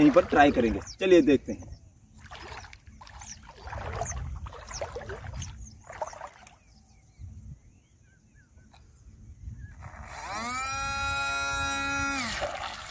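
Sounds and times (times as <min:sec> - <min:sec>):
river water splashing around legs: 0:00.0 - 0:01.0, 0:02.1 - 0:06.8, 0:11.8 - 0:12.9.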